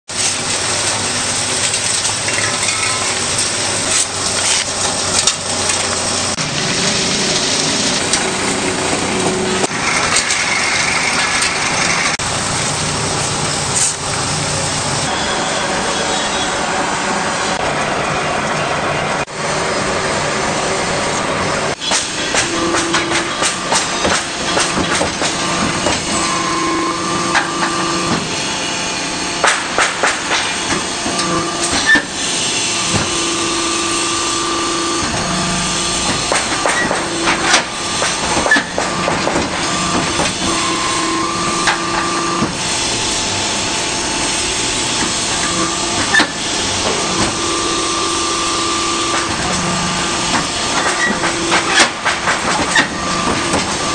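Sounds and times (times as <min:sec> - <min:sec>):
machine hum: 0:00.2 - 0:53.9
machine hiss: 0:19.3 - 0:53.9.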